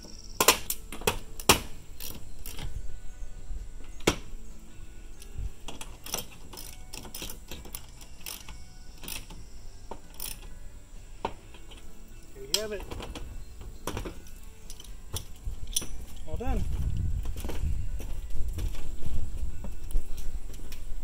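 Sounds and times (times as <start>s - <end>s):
socket ratchet clicking: 5.2s - 10.5s.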